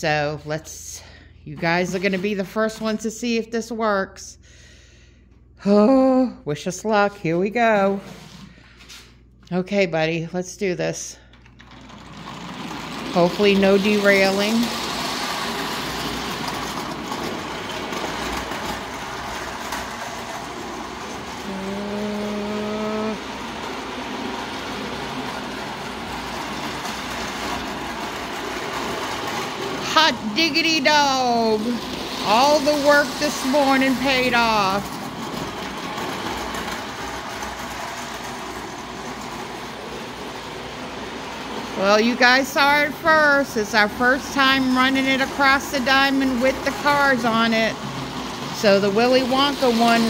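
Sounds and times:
toy train rattling on track: 11.3s - 50.0s.

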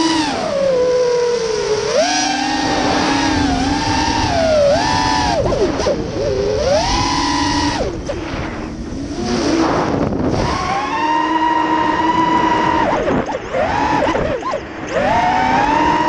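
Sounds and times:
rush of air noise: 0.0s - 11.0s
quadcopter motors whining: 0.0s - 16.0s.

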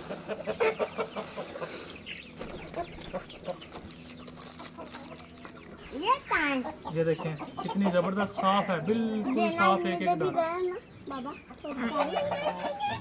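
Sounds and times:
chickens clucking: 0.0s - 13.0s
plastic packet clicks and rustles: 2.4s - 5.7s.

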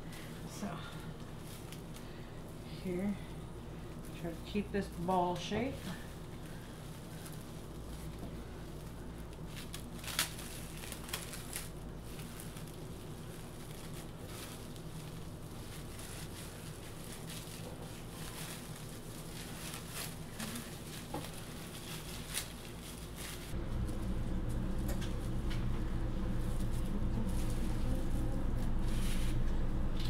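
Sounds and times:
low steady hum: 0.0s - 30.0s
plastic cling wrap crinkling: 0.0s - 30.0s.

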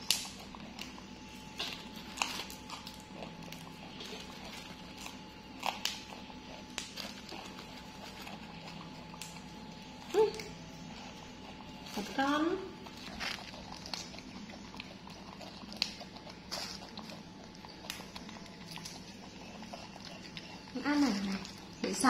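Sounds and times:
vegetable stems snapping: 0.0s - 0.9s
steady low hum: 0.0s - 22.0s.

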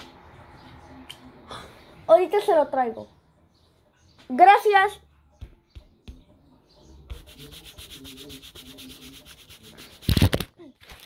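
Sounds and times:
fast rasping scrape: 7.1s - 10.1s.

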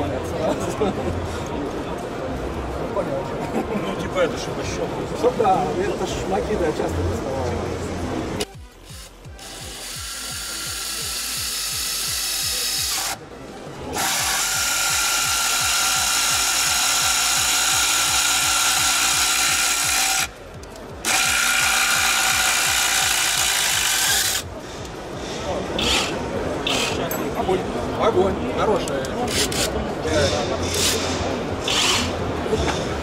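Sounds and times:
cordless screwdriver driving screw: 8.8s - 13.2s, 14.0s - 20.3s, 21.0s - 24.4s, 29.2s - 29.8s, 30.7s - 32.2s.

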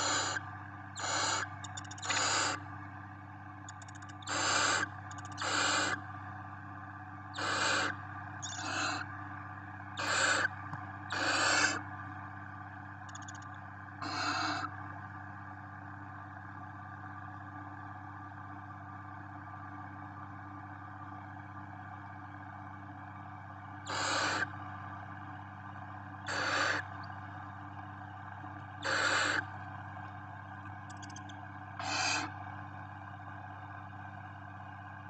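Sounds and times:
owl chicks hissing calls: 0.0s - 0.4s, 1.0s - 2.6s, 4.2s - 6.0s, 7.4s - 9.1s, 10.0s - 10.5s, 11.1s - 11.8s, 14.0s - 14.7s, 23.9s - 24.5s, 26.3s - 26.8s, 28.8s - 29.5s, 31.8s - 32.3s
steady low hum: 0.0s - 35.0s.

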